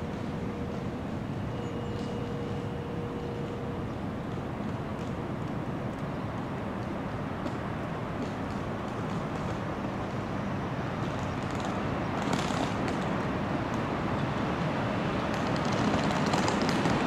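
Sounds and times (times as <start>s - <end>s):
steady whine: 0.0s - 8.2s
tram running noise: 0.0s - 17.0s.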